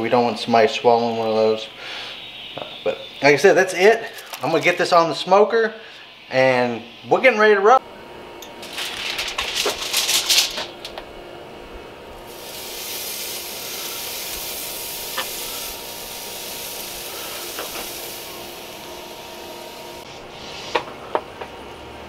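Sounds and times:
meat sizzling on a grill: 12.3s - 20.6s.

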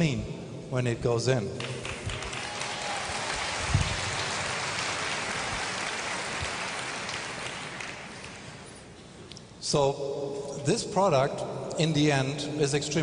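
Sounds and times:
audience applauding: 1.6s - 8.7s.

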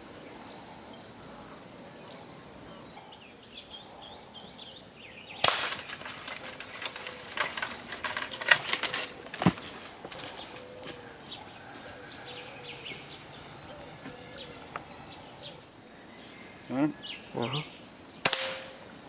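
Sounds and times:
small birds chirping: 0.0s - 18.3s
leaves and branches rustling: 5.3s - 19.0s
air rifle shot: 5.4s - 5.9s, 18.2s - 18.8s.

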